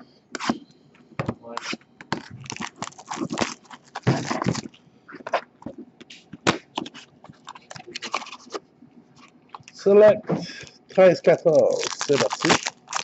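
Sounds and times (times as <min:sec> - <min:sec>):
plastic wrap crinkling: 0:02.4 - 0:04.8, 0:11.3 - 0:13.0
cardboard flap snapping: 0:11.8 - 0:13.0.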